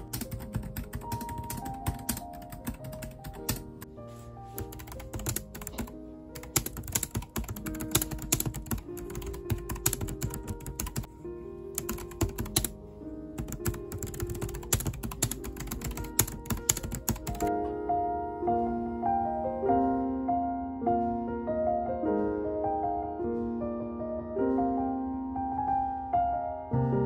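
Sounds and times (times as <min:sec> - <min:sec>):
fast typing on keyboard: 0:00.0 - 0:03.8, 0:04.6 - 0:11.1, 0:11.8 - 0:12.7, 0:13.4 - 0:17.5
piano music: 0:00.0 - 0:27.0.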